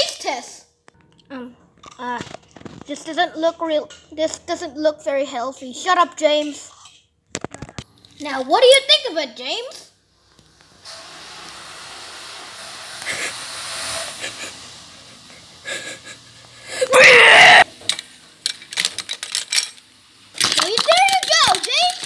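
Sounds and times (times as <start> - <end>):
child's short loud cry: 16.8 - 17.6
clicks and knocks of toys: 17.8 - 22.0.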